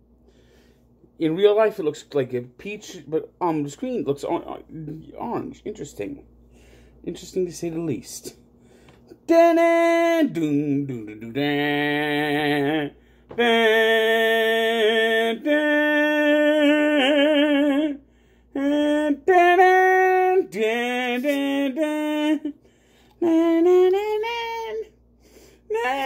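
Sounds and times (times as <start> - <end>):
person singing wordless tune: 9.1 - 26.0.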